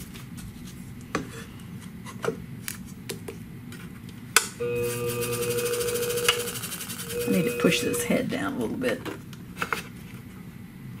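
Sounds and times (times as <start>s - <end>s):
sharpening machine humming: 4.6s - 8.2s.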